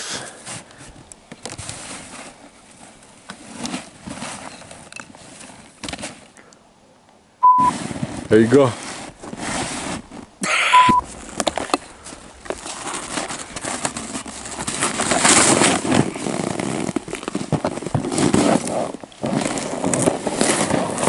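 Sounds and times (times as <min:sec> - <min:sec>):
plastic sled scraping over snow: 0:00.0 - 0:06.2, 0:07.6 - 0:10.4, 0:11.0 - 0:21.0
short electronic beep: 0:07.4 - 0:07.7, 0:10.6 - 0:11.0.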